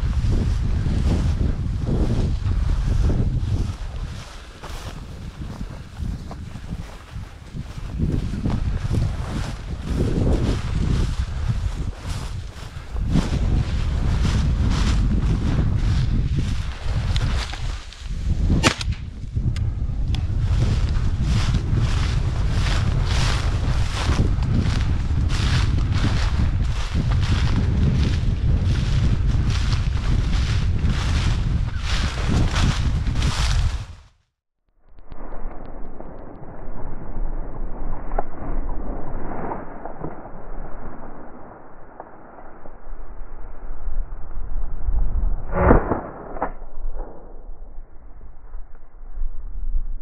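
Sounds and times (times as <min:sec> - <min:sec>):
steps through dry grass: 0:00.0 - 0:19.5, 0:20.2 - 0:34.2
wind buffeting microphone: 0:00.0 - 0:34.1
sharp crack: 0:17.1 - 0:19.2, 0:45.4 - 0:47.8.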